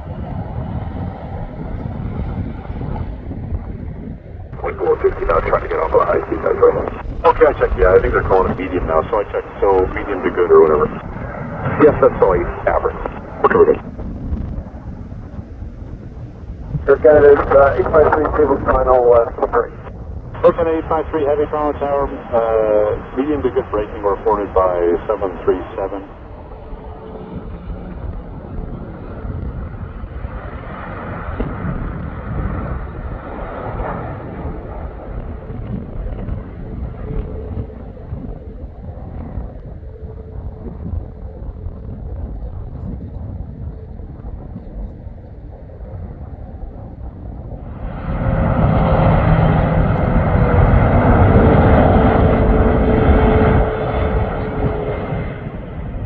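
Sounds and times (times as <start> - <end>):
jet engine noise: 0.0 - 56.0
low rumble: 0.0 - 56.0
faint whine falling in pitch: 33.9 - 56.0.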